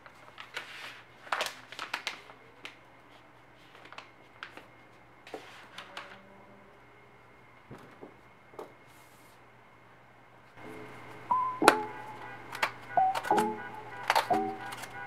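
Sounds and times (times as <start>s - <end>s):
packaging taps and rustles: 12.5s - 15.0s.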